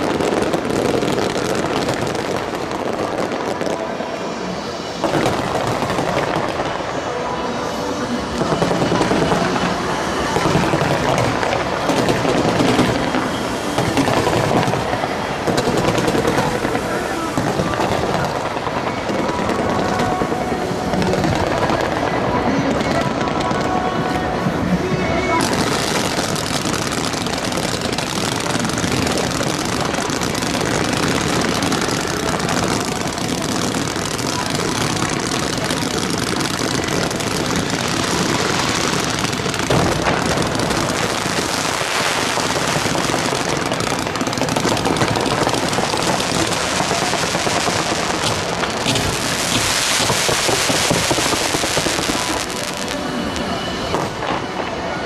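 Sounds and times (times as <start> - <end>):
fireworks hiss: 0.0 - 23.8, 25.3 - 55.0
fireworks crackling and popping: 0.0 - 55.0
firework bang: 25.4 - 54.6.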